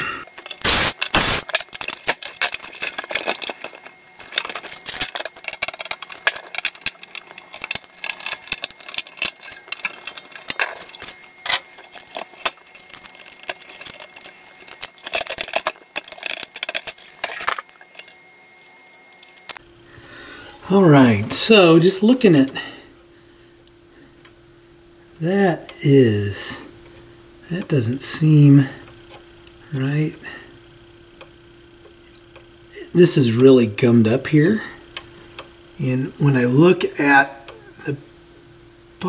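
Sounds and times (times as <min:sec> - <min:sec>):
tools clicking and clattering: 0:00.4 - 0:18.2, 0:19.1 - 0:19.6.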